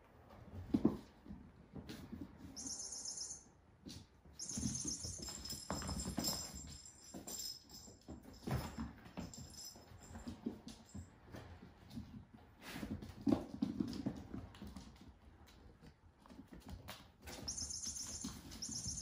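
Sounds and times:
kittens thumping and scuffing: 0.3s - 2.6s
jingle-bell toy rattling: 2.6s - 3.4s, 4.4s - 10.3s, 17.4s - 19.0s.

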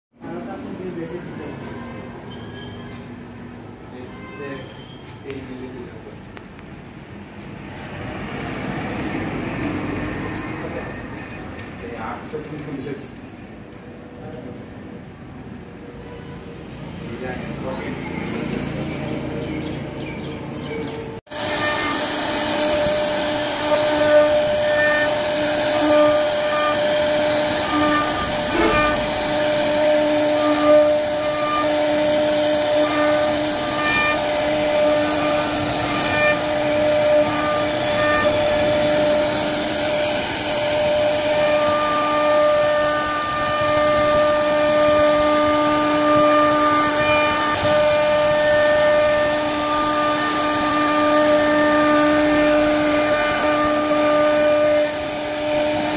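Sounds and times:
bit cutting wood hiss: 21.3s - 55.9s
router spindle whine: 21.3s - 55.9s
higher tone: 21.4s - 40.5s.

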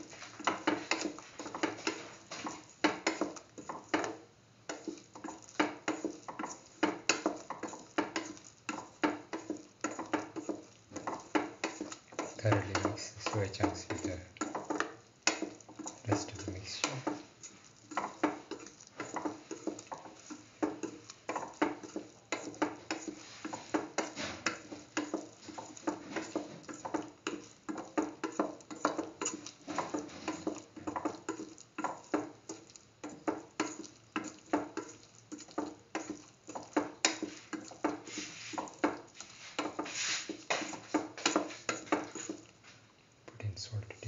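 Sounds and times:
spatula scraping a pan: 0.0s - 42.9s.

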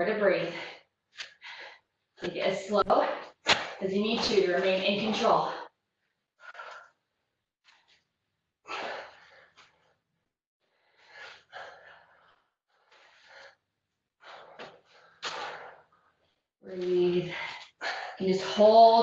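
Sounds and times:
woman breathing hard: 8.7s - 9.9s, 10.6s - 13.6s.

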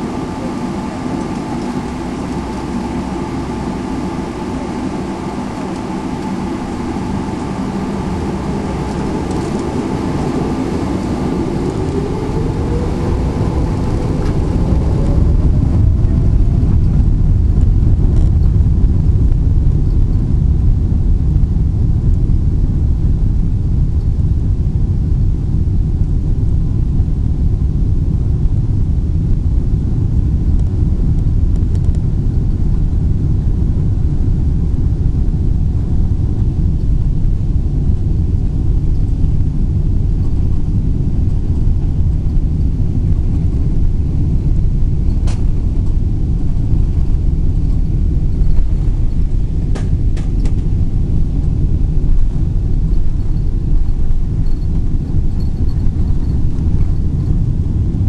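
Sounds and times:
jet engines and runway rumble: 0.0s - 58.0s.

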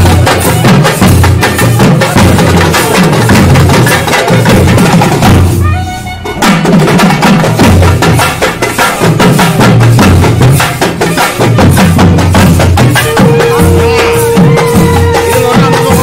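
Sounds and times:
drum group playing fast rhythm: 0.0s - 16.0s
short high tone: 13.0s - 16.0s.

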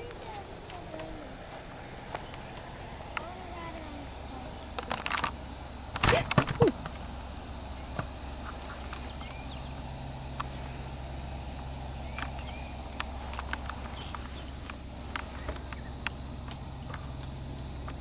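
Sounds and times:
insects droning: 0.0s - 18.0s
hooves and tack clicking: 12.1s - 18.0s.

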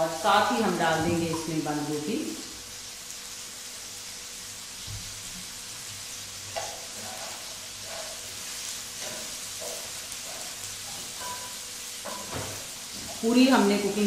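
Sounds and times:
food sizzling in a hot pan: 0.0s - 14.0s
wooden spatula scraping: 6.6s - 11.3s.

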